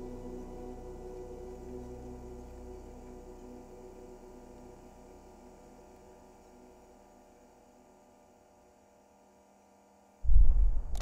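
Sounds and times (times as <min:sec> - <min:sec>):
faint electronic drone: 0:00.0 - 0:11.0.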